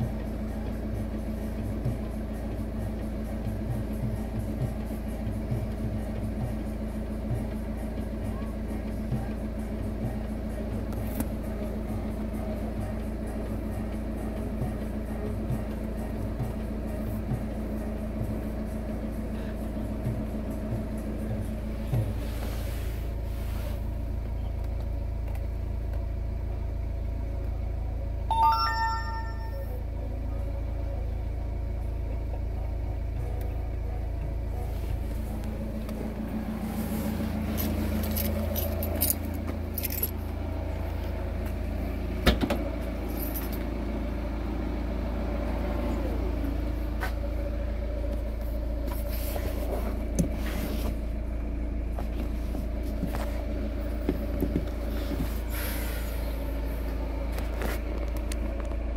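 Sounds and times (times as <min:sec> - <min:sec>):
car engine humming: 0:00.0 - 0:58.9
car chime: 0:28.3 - 0:29.8.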